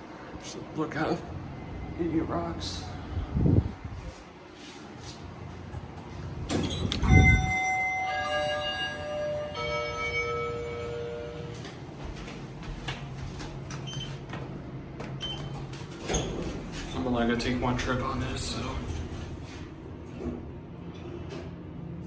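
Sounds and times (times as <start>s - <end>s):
low steady hum: 5.3s - 15.6s
elevator arrival chime: 6.7s - 12.0s.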